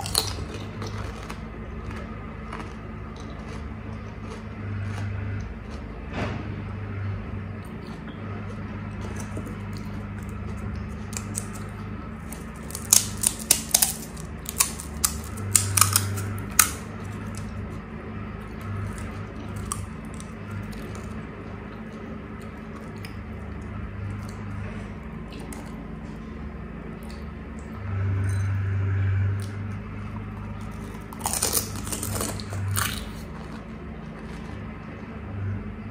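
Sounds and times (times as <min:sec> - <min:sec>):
fried shells crunching: 0:00.0 - 0:05.9, 0:07.6 - 0:17.8, 0:18.4 - 0:23.3, 0:30.2 - 0:34.8
steady low hum: 0:00.0 - 0:35.9.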